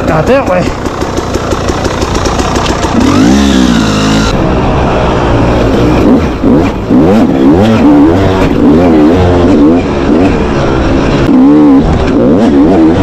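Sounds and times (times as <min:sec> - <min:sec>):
dirt bike engine revving: 0:00.0 - 0:13.0.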